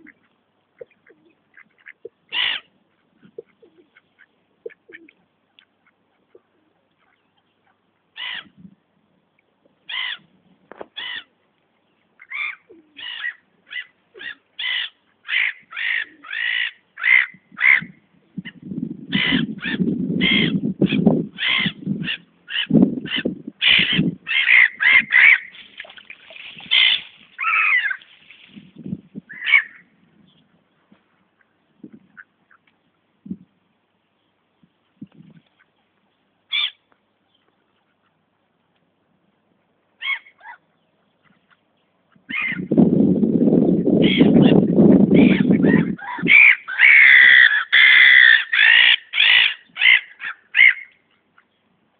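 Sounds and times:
waterbirds calling: 0:00.0 - 0:08.6, 0:09.9 - 0:10.3, 0:10.9 - 0:30.0, 0:35.5 - 0:38.3, 0:43.8 - 0:51.7.

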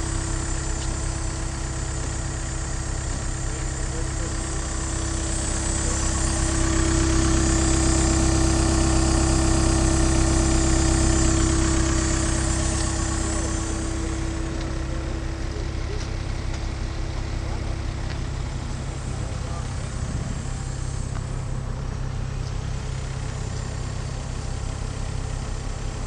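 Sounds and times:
excavator diesel engine idling: 0:00.0 - 0:26.0.

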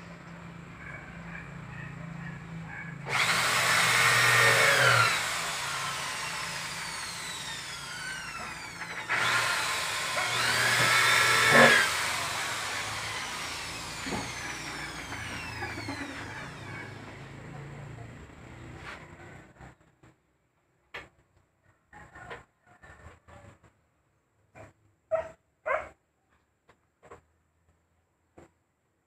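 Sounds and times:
electric drill whining: 0:03.1 - 0:17.1.

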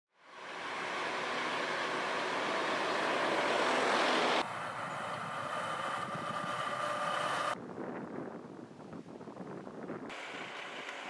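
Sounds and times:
heavy trucks driving: 0:00.2 - 0:07.6
steady whine: 0:00.2 - 0:07.6.

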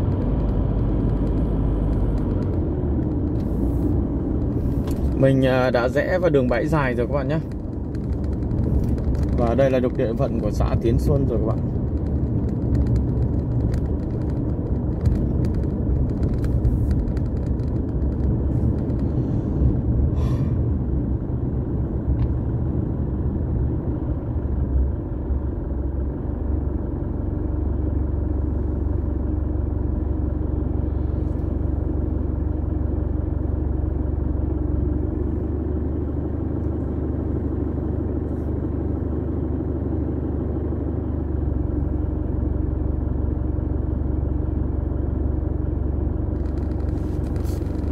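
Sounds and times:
car knocks and rattles: 0:00.0 - 0:24.7, 0:46.2 - 0:47.9
car engine and tyre rumble: 0:00.0 - 0:47.9.

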